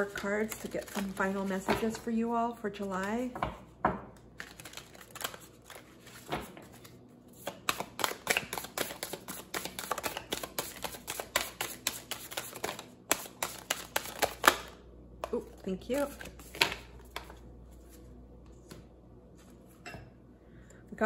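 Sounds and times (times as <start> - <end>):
cards being shuffled by hand: 0.0 - 1.9, 4.4 - 14.7, 15.3 - 18.9.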